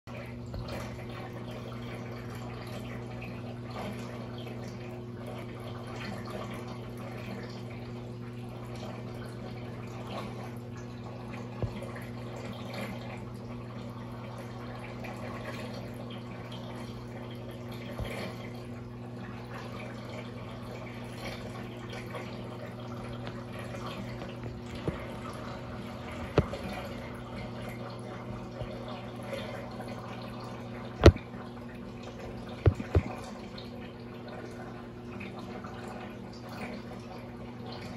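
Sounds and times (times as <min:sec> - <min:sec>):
aquarium water trickling: 0:00.1 - 0:37.9
steady low hum: 0:19.3 - 0:34.7.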